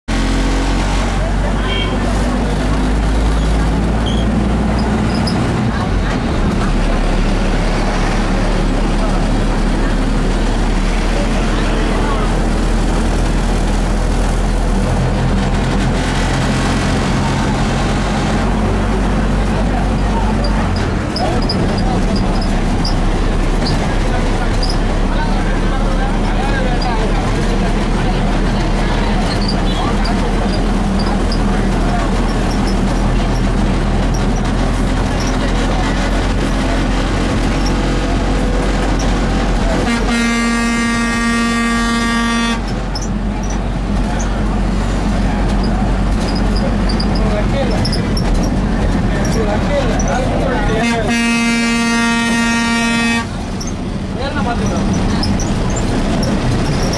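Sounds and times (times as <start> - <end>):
bus engine drone: 0.0 - 56.9
road rumble: 0.0 - 56.9
vehicle horn blast: 39.8 - 42.7, 50.8 - 53.4.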